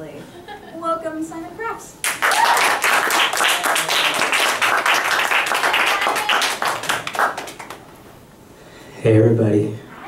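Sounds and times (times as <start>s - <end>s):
audience applauding: 2.0s - 7.8s.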